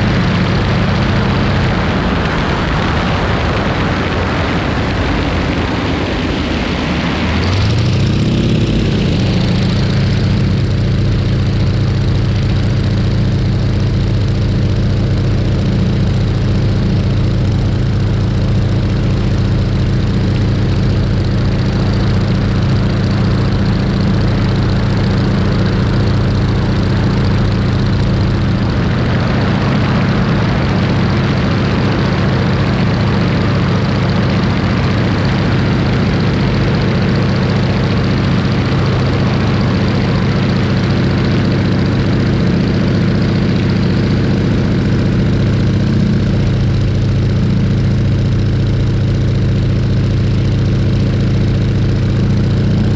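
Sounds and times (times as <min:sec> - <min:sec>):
rushing air noise: 0:00.0 - 0:10.7
propeller plane engine in flight: 0:00.0 - 0:52.9.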